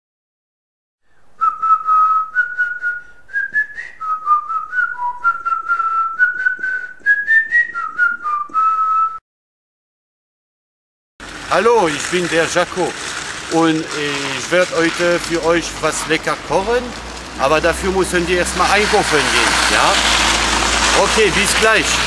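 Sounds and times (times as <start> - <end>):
whistled tune: 1.4 - 9.2.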